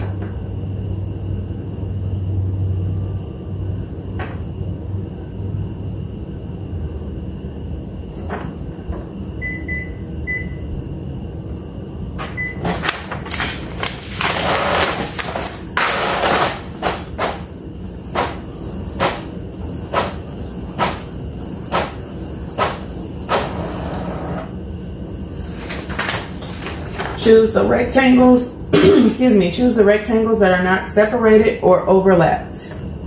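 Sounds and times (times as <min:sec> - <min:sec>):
short beeps: 0:09.4 - 0:10.6
printer paper feeding whir: 0:12.1 - 0:27.5.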